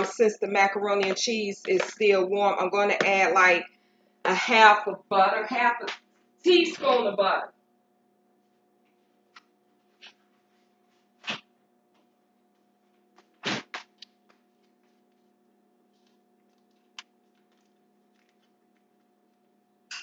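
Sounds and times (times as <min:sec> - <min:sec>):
faint steady hum: 0:00.0 - 0:20.0
butter being unwrapped: 0:16.0 - 0:19.4.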